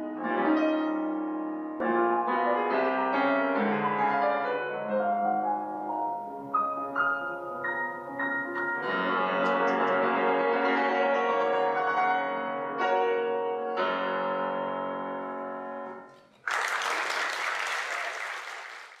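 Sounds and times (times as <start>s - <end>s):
grand piano chords: 0.0s - 16.3s
audience applause: 16.3s - 19.0s.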